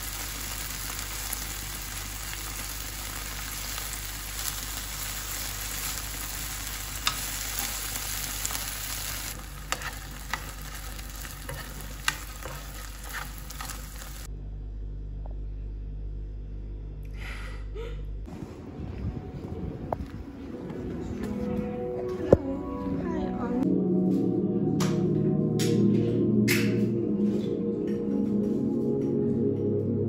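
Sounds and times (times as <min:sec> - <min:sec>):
chicken sizzling in oil: 0:00.0 - 0:14.3
low hum: 0:00.1 - 0:30.0.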